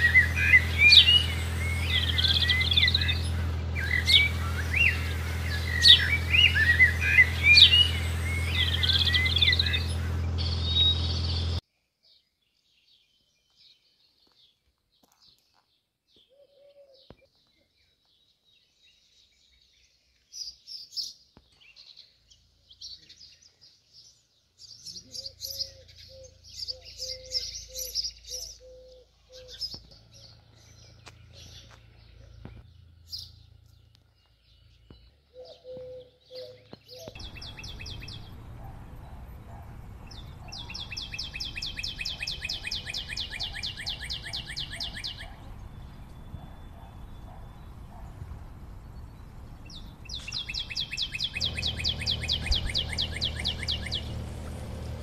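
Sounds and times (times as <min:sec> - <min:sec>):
steady outdoor hiss: 0:00.0 - 0:10.1, 0:37.2 - 0:46.0
fast high bird trill: 0:00.0 - 0:11.6, 0:37.2 - 0:55.0
songbirds chirping: 0:00.0 - 0:55.0.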